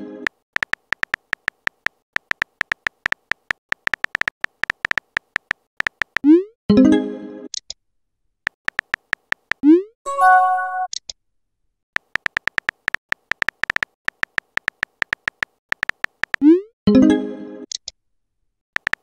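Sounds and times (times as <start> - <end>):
phone keyboard typing clicks: 0.6 - 6.3, 8.5 - 9.6, 12.0 - 16.4, 18.8 - 19.0.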